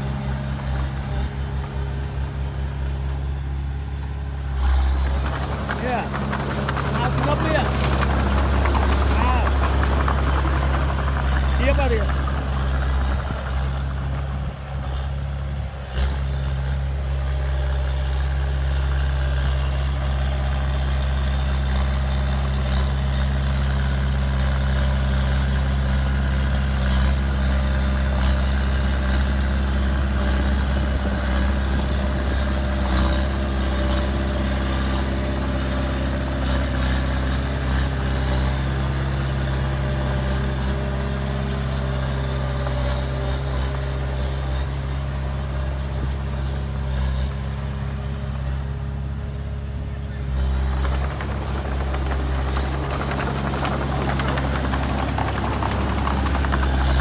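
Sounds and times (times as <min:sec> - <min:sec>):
bulldozer diesel engine running: 0:00.0 - 0:57.0
blade pushing soil: 0:04.5 - 0:15.0, 0:50.0 - 0:57.0.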